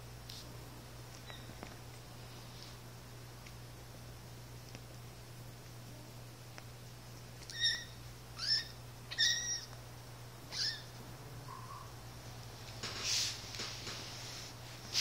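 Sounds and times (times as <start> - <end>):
steady low hum: 0.0 - 15.0
kitten squeaking mews: 1.2 - 1.6, 7.4 - 9.8, 10.5 - 11.9.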